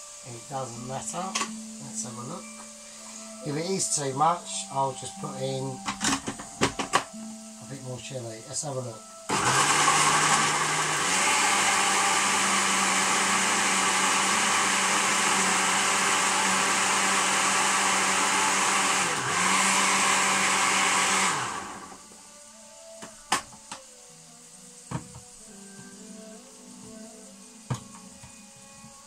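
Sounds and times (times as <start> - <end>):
electric blender motor running: 9.3 - 22.0.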